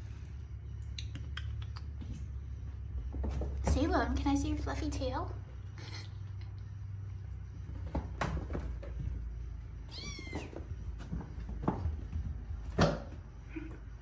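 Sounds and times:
kittens thumping and scuffling on carpet: 3.0 - 4.2, 7.6 - 13.4
kitten meowing: 9.9 - 10.5.

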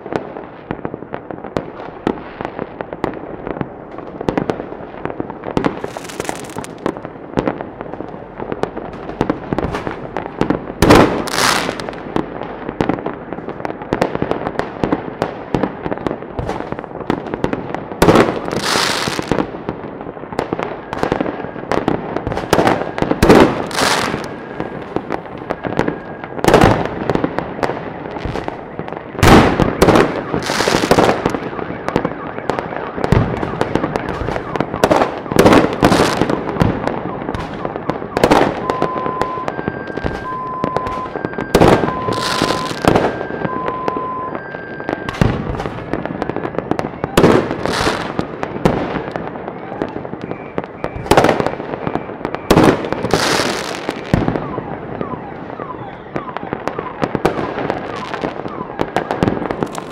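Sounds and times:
distant fireworks pops: 0.0 - 59.9
fireworks bangs: 0.0 - 59.9.

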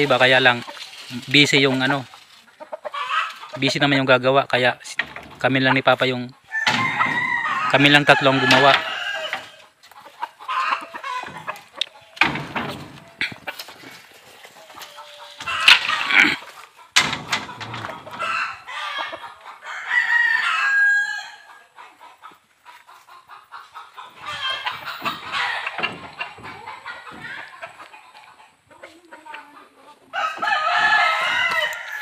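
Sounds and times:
rustling: 0.0 - 3.8, 11.1 - 18.3
chickens clucking: 0.0 - 32.0
rooster crowing: 6.5 - 9.6, 18.2 - 21.6, 24.2 - 26.0, 30.1 - 32.0
knocks on wooden pen: 17.0 - 18.2.

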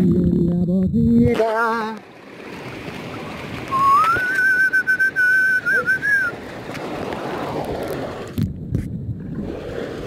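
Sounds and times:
water rushing: 1.4 - 8.5, 9.1 - 10.0
person whistling: 3.7 - 6.4.

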